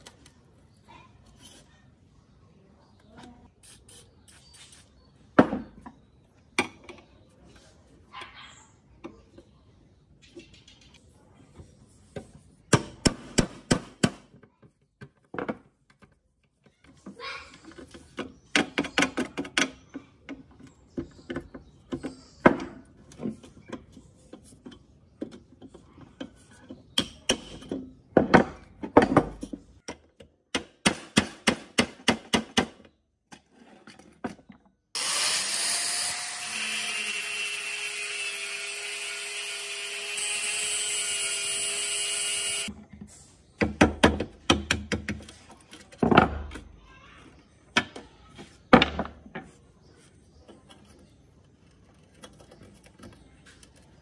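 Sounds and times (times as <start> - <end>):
electric drill drilling metal: 35.0 - 42.7.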